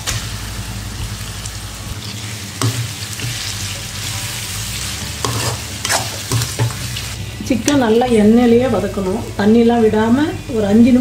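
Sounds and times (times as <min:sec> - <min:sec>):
chicken sizzling in hot oil: 0:00.0 - 0:07.2
metal ladle scraping pan: 0:05.1 - 0:06.8.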